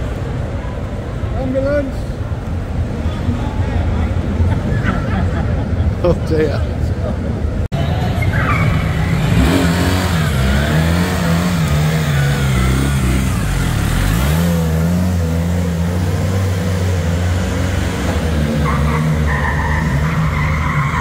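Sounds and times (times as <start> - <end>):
motorcycle engine revving: 7.9 - 20.4.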